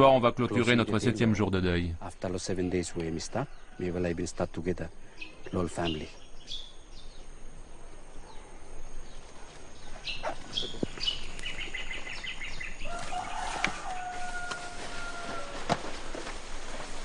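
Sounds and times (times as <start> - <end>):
birds chirping and trilling: 0.4 - 15.6
rustling: 8.8 - 17.0.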